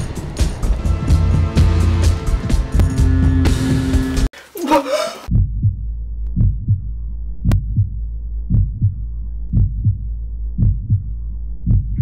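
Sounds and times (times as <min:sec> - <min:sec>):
heartbeat thumps: 0:05.3 - 0:12.0.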